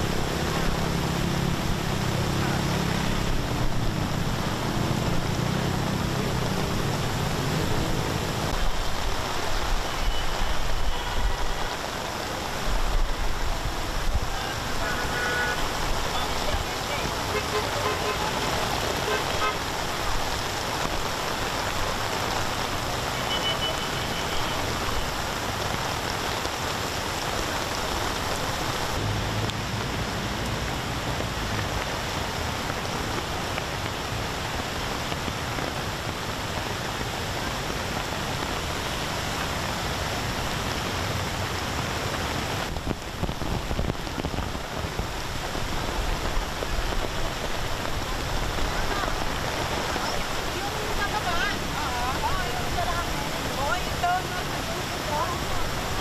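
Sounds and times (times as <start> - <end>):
fast-flowing floodwater: 0.0 - 56.0
heavy rain: 0.0 - 56.0
car horn toots: 14.6 - 15.7.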